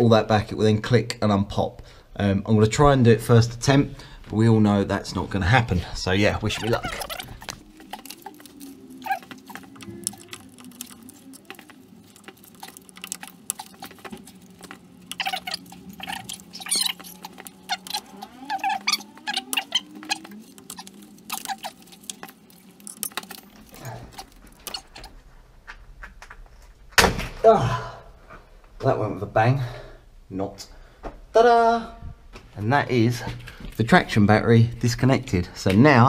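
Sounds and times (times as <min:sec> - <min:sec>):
rubber gloves squeaking on plastic: 0:05.9 - 0:25.6.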